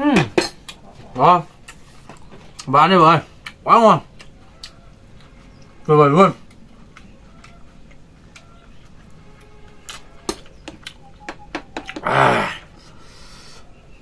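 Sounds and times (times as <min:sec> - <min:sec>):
man's short vocal sound: 0:12.0 - 0:12.6.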